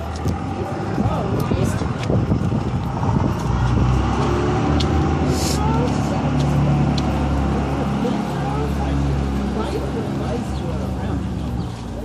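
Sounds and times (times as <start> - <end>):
vehicle engine running: 0.0 - 12.0.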